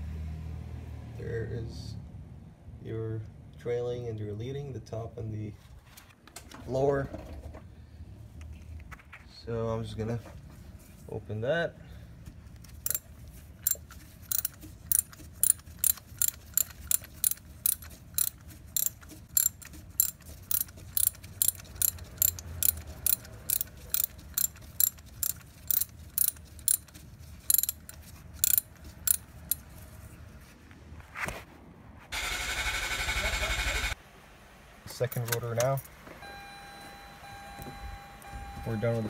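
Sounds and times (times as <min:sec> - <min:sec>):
ratchet wrench clicking: 0:12.8 - 0:13.0, 0:13.6 - 0:29.6.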